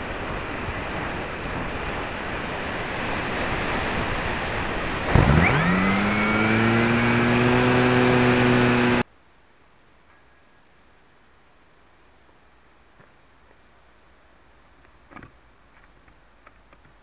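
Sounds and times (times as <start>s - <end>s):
electric motor and propeller whine: 2.7s - 9.0s.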